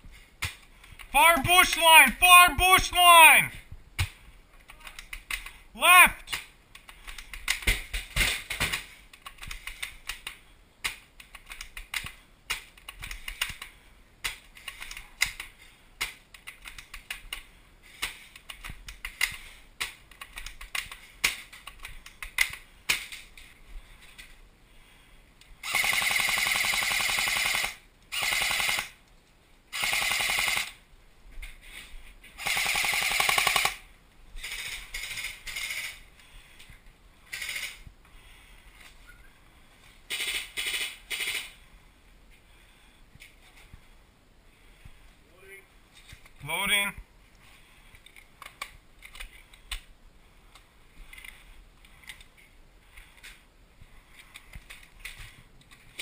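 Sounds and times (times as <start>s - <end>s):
airsoft rifle full-auto bursts: 25.6s - 29.0s, 29.7s - 30.8s, 32.4s - 33.8s, 40.1s - 41.6s.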